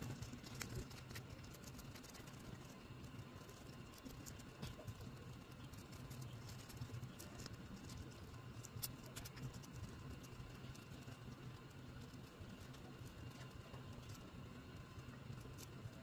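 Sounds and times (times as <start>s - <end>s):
paper crinkling: 0.0s - 11.4s
steady low hum: 0.0s - 16.0s.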